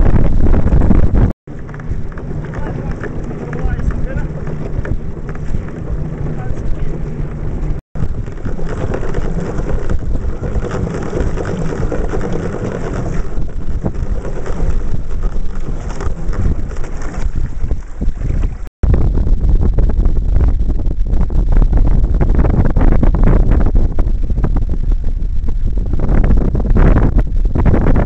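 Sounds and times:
wind buffeting microphone: 0:00.0 - 0:28.0
water splashing: 0:01.5 - 0:18.7.

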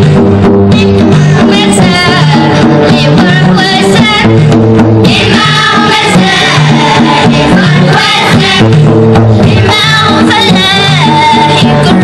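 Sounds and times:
banjo: 0:00.0 - 0:12.0
children singing in chorus: 0:01.4 - 0:04.4, 0:05.1 - 0:08.7, 0:09.5 - 0:12.0.

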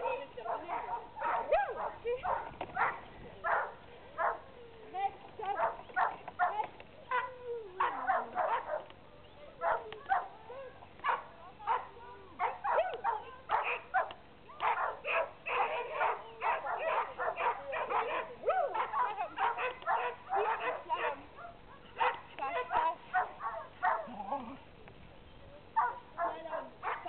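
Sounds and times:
small dog yapping: 0:12.4 - 0:24.6.

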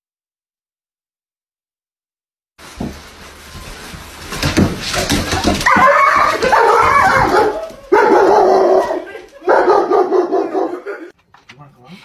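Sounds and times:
knocks and shuffling: 0:02.6 - 0:12.0
dog whining and yelping: 0:05.2 - 0:11.1.

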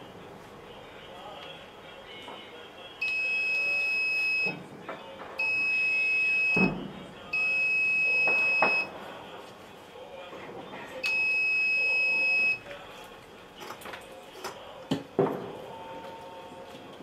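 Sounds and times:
electronic buzzer beeps: 0:03.0 - 0:04.5, 0:05.4 - 0:06.7, 0:07.3 - 0:08.9, 0:11.0 - 0:12.6.

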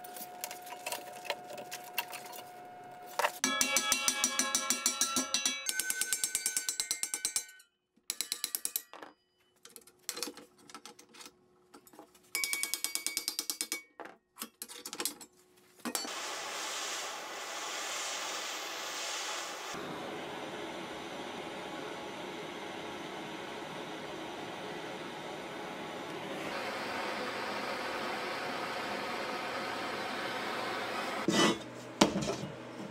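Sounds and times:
gas torch hissing: 0:16.0 - 0:20.5.

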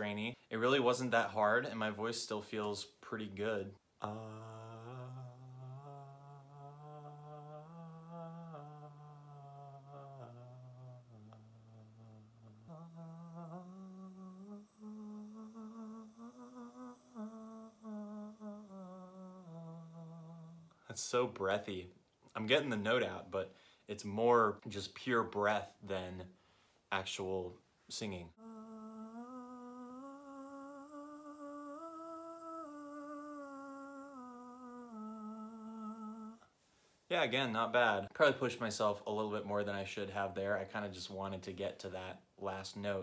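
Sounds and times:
man singing vocal warm-up: 0:00.0 - 0:21.8, 0:26.9 - 0:36.5.

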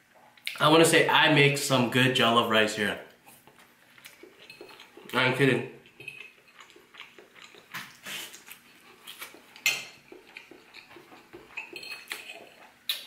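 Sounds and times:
person chewing: 0:03.2 - 0:05.2, 0:05.8 - 0:13.0.

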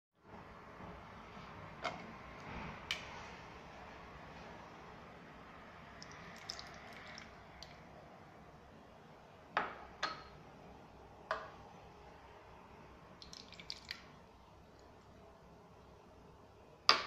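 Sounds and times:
liquid pouring and dripping: 0:05.9 - 0:07.9, 0:13.1 - 0:15.0.

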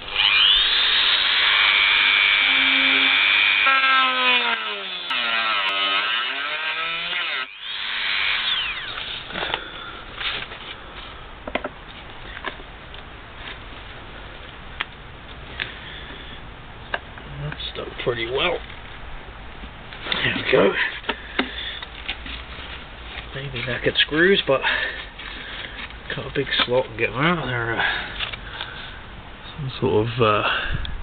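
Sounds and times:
rotary tool grinding metal: 0:00.0 - 0:09.3.

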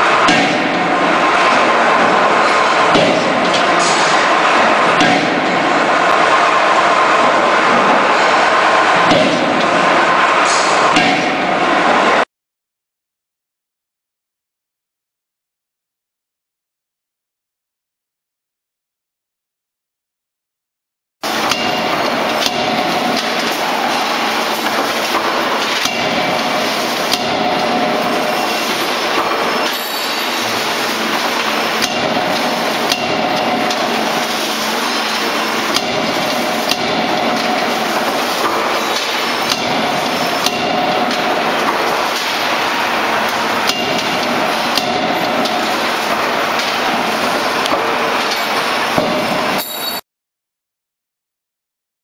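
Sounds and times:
forging hammer blows: 0:00.0 - 0:12.3, 0:21.2 - 0:50.0
machine and forge shop din: 0:00.0 - 0:12.3, 0:21.2 - 0:50.0.

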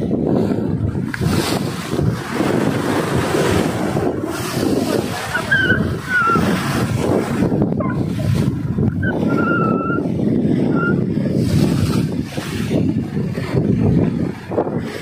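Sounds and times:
surf washing against rocks: 0:00.0 - 0:15.0
wind buffeting microphone: 0:00.0 - 0:15.0.

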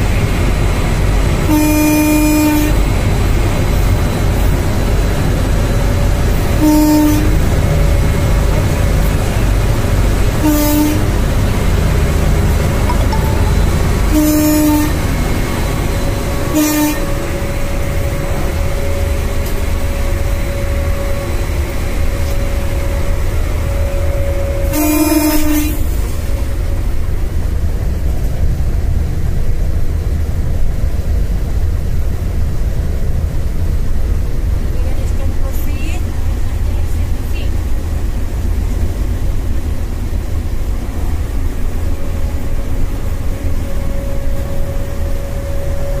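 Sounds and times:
locomotive rumble: 0:00.0 - 0:46.0
locomotive horn blasts: 0:01.4 - 0:03.0, 0:06.4 - 0:09.6, 0:10.2 - 0:11.4, 0:12.7 - 0:26.5, 0:41.9 - 0:46.0.

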